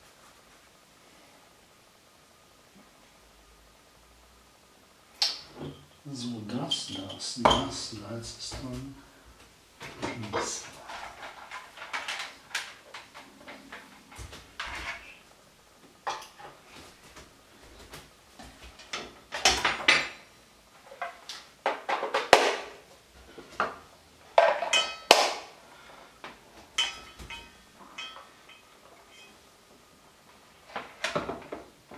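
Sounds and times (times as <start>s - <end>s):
kitchen utensils clattering: 5.2s - 9.0s, 9.8s - 15.2s, 16.1s - 16.6s, 18.7s - 22.7s, 23.6s - 25.5s, 26.7s - 29.4s
ringing metal clinks: 26.8s - 29.4s.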